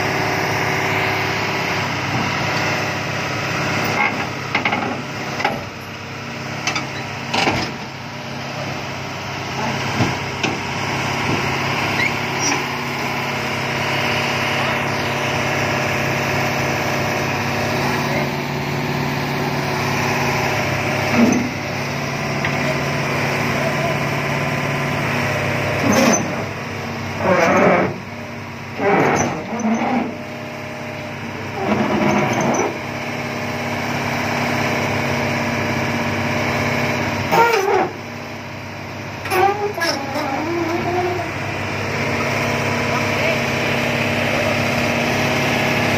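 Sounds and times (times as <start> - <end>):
excavator diesel engine running: 0.0 - 45.9.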